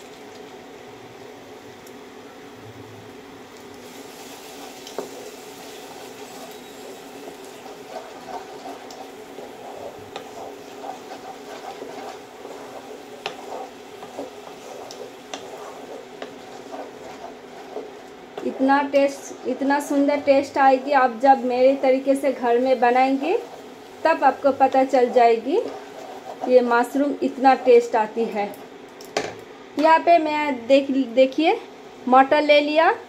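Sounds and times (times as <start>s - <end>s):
low sizzle: 0.0s - 33.0s
wooden spatula scraping a pan: 3.9s - 28.3s.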